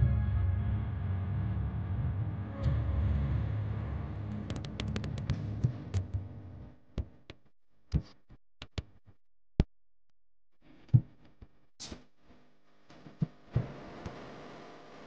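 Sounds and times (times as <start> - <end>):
background music: 0.0 - 6.6
sharp isolated clicks: 4.5 - 6.2.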